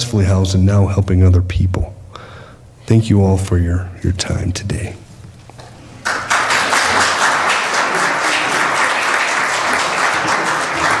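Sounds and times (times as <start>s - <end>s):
congregation applauding: 6.0s - 11.0s.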